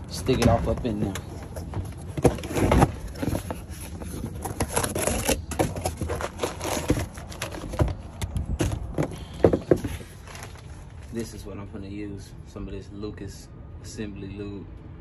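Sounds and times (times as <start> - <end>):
cardboard packaging rustling: 0.4 - 11.3.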